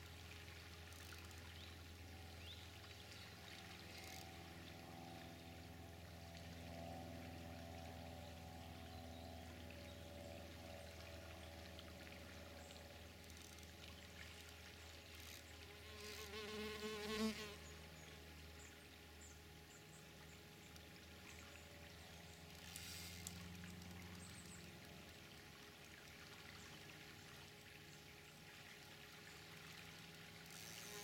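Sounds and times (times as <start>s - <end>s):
low hum: 0.0s - 16.2s
insect buzzing: 15.1s - 17.9s, 22.5s - 24.0s, 30.4s - 31.0s.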